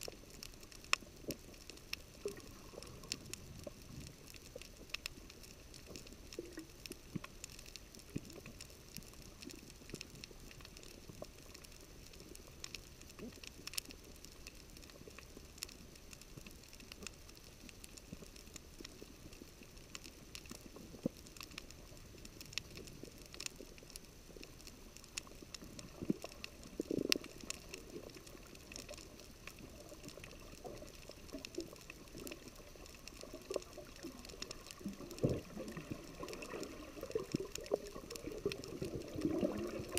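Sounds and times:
snapping shrimp crackle: 0.0s - 39.9s
low underwater burbling: 25.7s - 39.9s.

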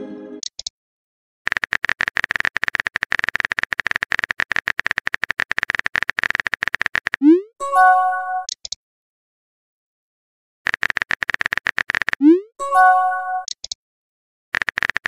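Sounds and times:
phone keyboard typing clicks: 0.4s - 0.7s, 1.5s - 7.2s, 8.4s - 8.8s, 10.7s - 12.3s, 13.4s - 13.8s, 14.6s - 15.0s.

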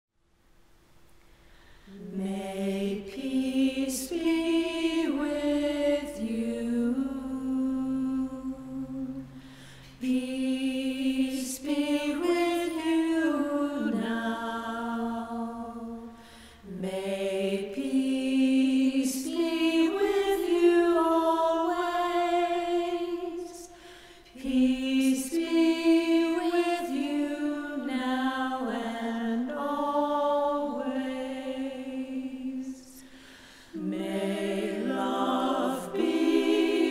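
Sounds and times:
women singing a cappella: 1.9s - 36.9s.

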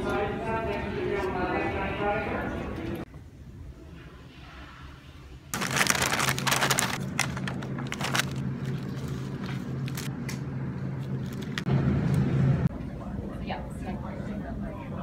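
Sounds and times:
paper bag rustling: 5.5s - 10.1s.

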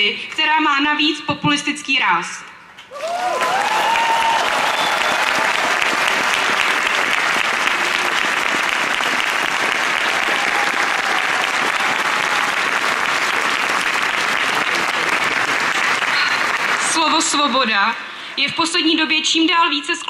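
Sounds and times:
crowd applauding: 2.8s - 18.0s.

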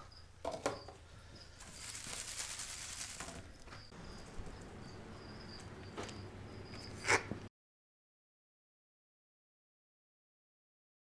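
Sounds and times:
paper slips rustling in a basket: 1.6s - 3.7s.

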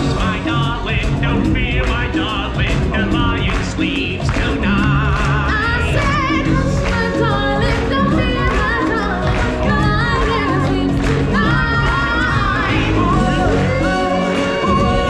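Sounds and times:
band playing: 0.0s - 15.0s
singers in choir-like harmony: 9.1s - 15.0s.

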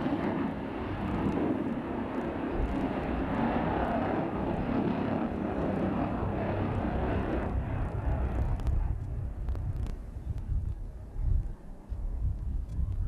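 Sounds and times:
jet engine rushing overhead: 0.0s - 13.0s.

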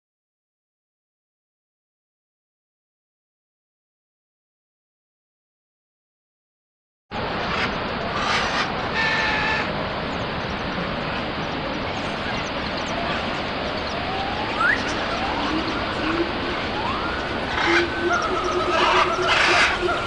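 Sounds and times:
waterfall rushing: 7.2s - 20.0s
faint rising calls: 11.4s - 20.0s.

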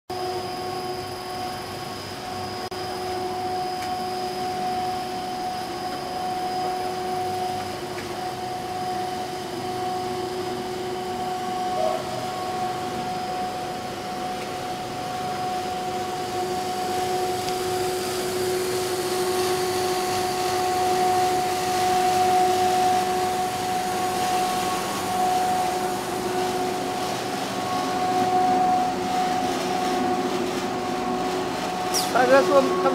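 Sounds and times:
extrusion machine drone: 0.1s - 32.9s.

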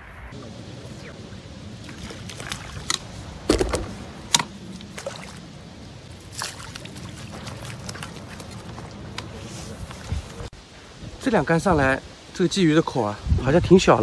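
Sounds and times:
steady low background noise: 0.0s - 14.0s
water splashes and knocks: 1.8s - 5.5s, 6.1s - 10.5s.

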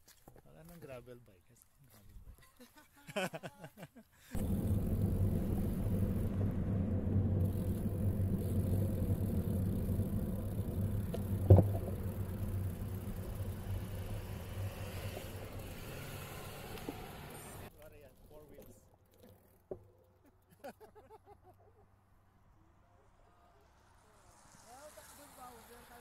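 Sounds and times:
wind and road noise rumble: 4.4s - 17.7s.

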